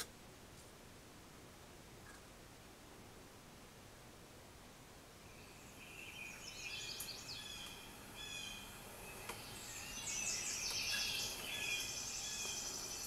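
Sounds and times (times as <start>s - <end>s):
recorded birdsong through speakers: 1.9s - 3.1s, 5.1s - 13.0s.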